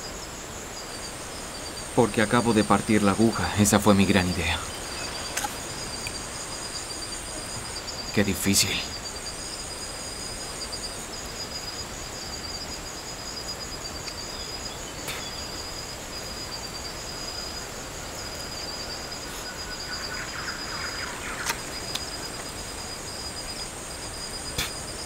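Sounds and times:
insect trilling: 0.0 - 25.0.

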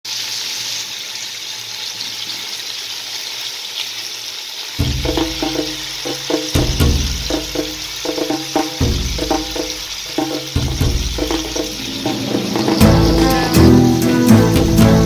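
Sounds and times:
chicken sizzling in hot oil: 0.0 - 15.0
background music with bass: 4.8 - 15.0.

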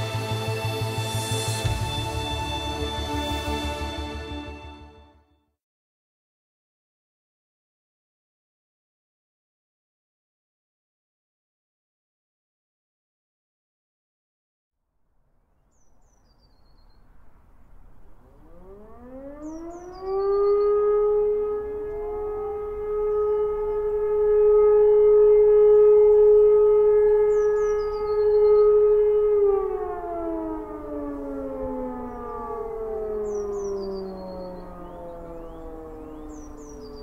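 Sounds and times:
sirens winding up and down: 0.0 - 5.0, 17.3 - 37.0
small bird chirping: 15.7 - 17.3, 19.4 - 20.8, 27.3 - 28.7, 33.0 - 37.0.

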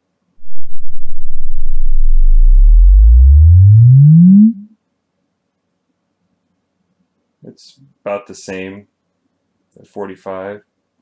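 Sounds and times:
low rising sine sweep: 0.4 - 4.7.

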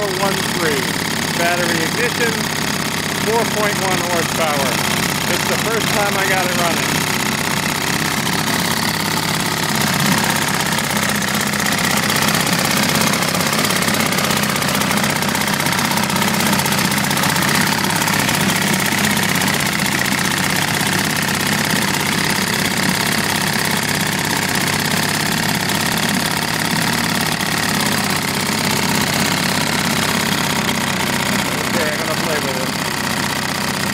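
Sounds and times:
outboard motor running: 0.0 - 33.9
propeller churning water: 0.0 - 33.9.

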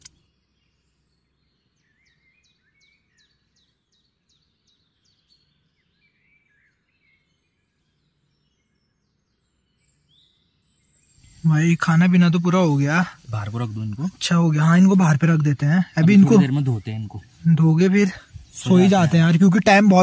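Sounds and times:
quiet high chirps: 11.0 - 20.0.

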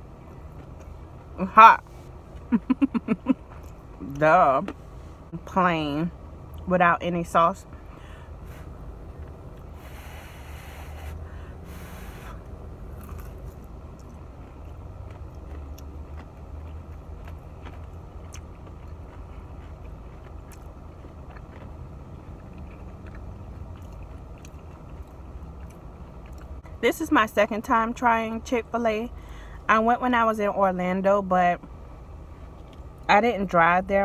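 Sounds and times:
low rumble inside car: 0.0 - 34.0
person chewing: 8.5 - 26.6.

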